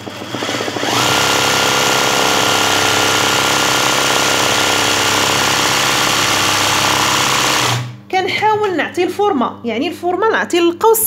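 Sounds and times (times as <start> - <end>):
sewing machine running: 0.0 - 8.0.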